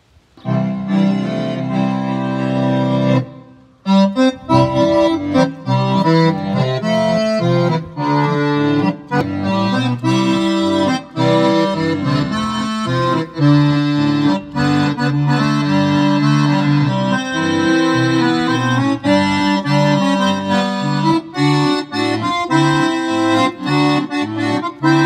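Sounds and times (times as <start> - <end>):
digital accordion melody: 0.4 - 25.0.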